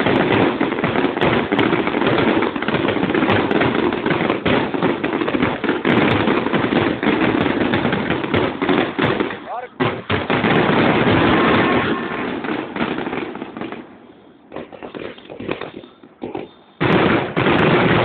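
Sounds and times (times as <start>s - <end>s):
fireworks bursting and crackling: 0.0s - 18.0s.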